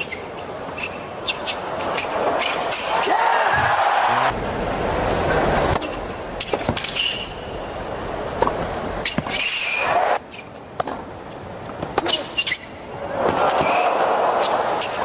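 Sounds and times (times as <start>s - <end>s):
stadium crowd noise: 0.0s - 15.0s.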